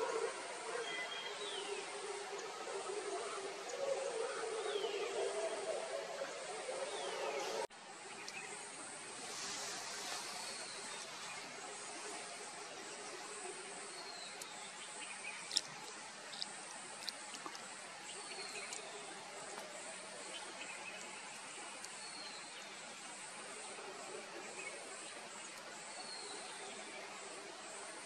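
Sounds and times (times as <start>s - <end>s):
insect hiss: 0.0s - 28.0s.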